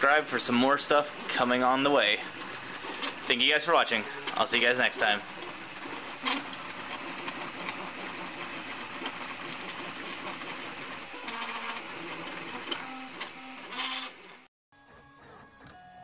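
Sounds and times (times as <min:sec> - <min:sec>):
rattling vibration: 0:00.0 - 0:14.5
printer stepper motors whirring: 0:00.0 - 0:16.0.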